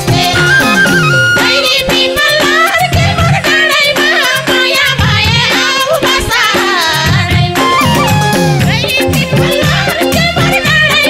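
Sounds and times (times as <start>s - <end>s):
hand drum rhythm: 0.0s - 11.0s
keyboard accompaniment: 0.0s - 11.0s
wavering folk melody: 0.1s - 2.6s, 7.6s - 11.0s.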